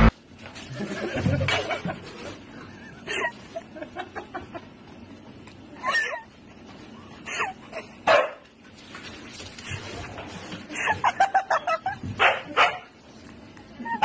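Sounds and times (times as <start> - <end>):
dog barking and yipping: 8.1 - 8.4, 12.2 - 12.9.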